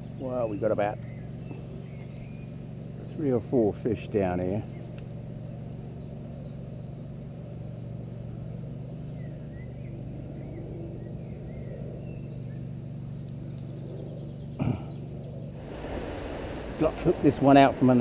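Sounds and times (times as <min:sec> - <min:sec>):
faint bird chirps: 0:04.6 - 0:15.5
low background rumble: 0:04.6 - 0:18.0.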